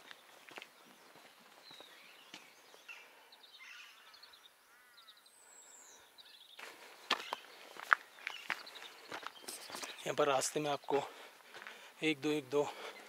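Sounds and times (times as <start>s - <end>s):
footsteps on a trail: 0.0s - 3.4s, 6.5s - 13.0s
small birds chirping: 0.0s - 13.0s.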